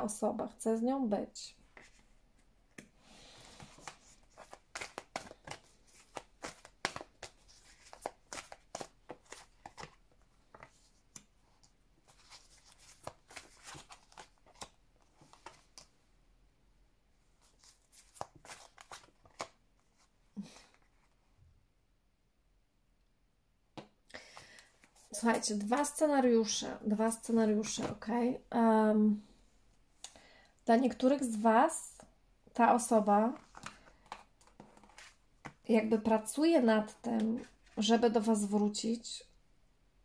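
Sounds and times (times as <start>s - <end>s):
cards being shuffled: 3.5s - 15.9s, 17.4s - 21.2s, 33.3s - 35.6s.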